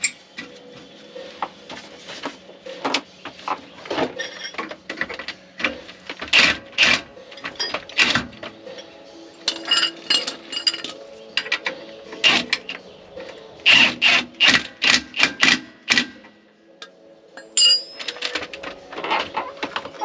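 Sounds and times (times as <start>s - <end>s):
impact wrench hammering: 13.7s - 16.2s.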